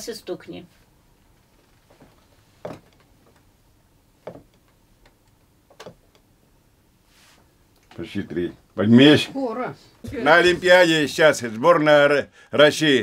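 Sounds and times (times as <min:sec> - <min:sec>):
wooden table knocking: 0:02.6 - 0:03.0, 0:04.2 - 0:04.6
faint taps: 0:04.2 - 0:06.3.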